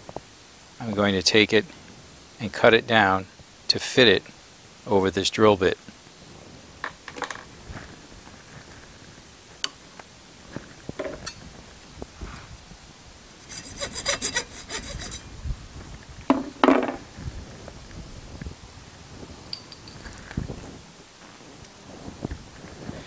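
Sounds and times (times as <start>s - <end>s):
hacksaw cutting plastic: 13.4s - 15.3s.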